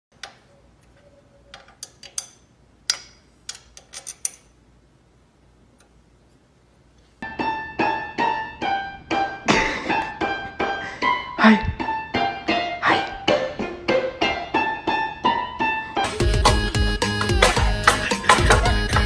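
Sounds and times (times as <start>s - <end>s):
tool tapping metal engine parts: 1.5s - 4.5s
keyboard notes: 7.2s - 19.0s.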